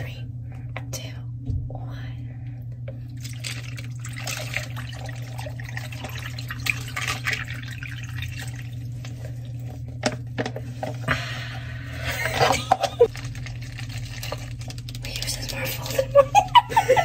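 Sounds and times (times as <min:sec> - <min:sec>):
liquid trickling over ice: 0:03.1 - 0:09.8, 0:13.0 - 0:16.3.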